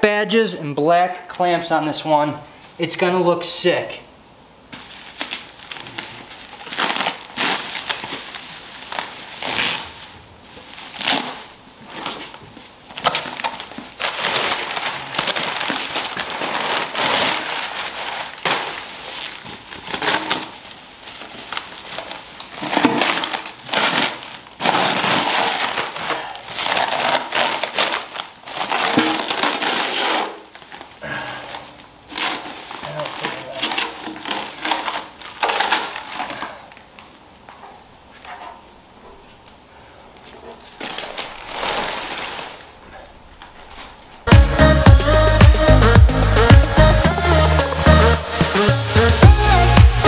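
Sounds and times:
bubble wrap and paper crinkling: 4.6s - 38.6s, 39.3s - 48.2s.

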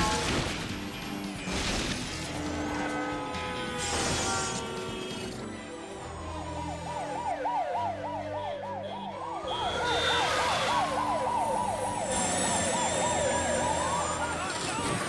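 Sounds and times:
police siren yelp: 5.9s - 15.0s
second siren tone gliding down: 6.0s - 15.0s.

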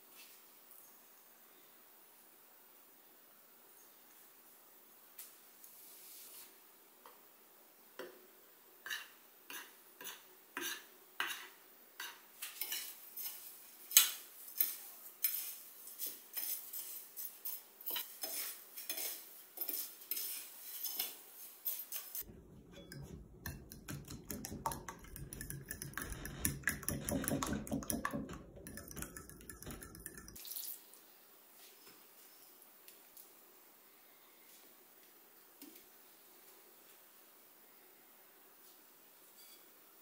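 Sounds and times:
utensils clinking against dishes: 12.4s - 23.7s.

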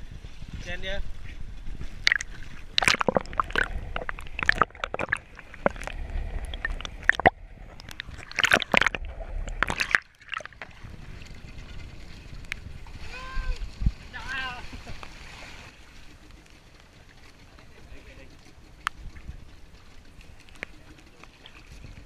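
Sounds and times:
low rumble: 0.0s - 16.6s
sea water splashing: 1.1s - 22.0s.

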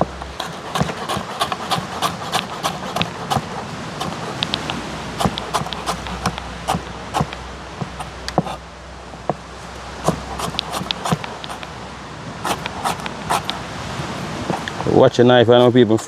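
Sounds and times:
knife chopping vegetables: 0.0s - 8.6s, 10.0s - 11.8s, 12.5s - 13.6s.

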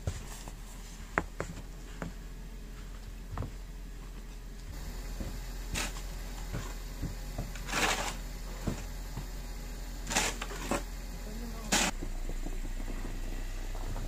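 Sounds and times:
snow shovel scraping: 4.7s - 14.0s.

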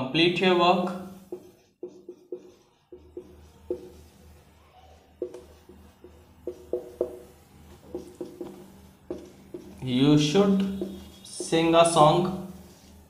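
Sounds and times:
marker writing on whiteboard: 0.7s - 13.0s.

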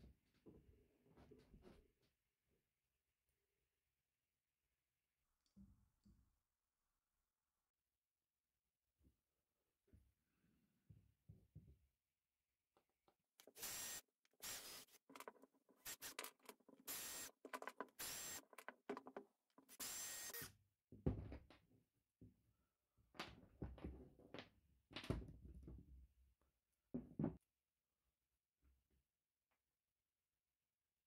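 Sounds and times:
cordless drill running: 13.4s - 15.2s, 15.8s - 18.6s, 19.7s - 20.5s
loose screws clattering: 14.4s - 19.8s
wooden pieces knocking: 15.1s - 19.3s.

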